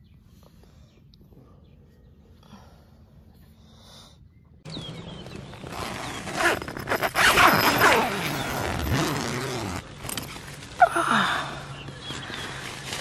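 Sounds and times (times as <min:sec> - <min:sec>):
tent zipper pulled open: 0:05.2 - 0:10.8.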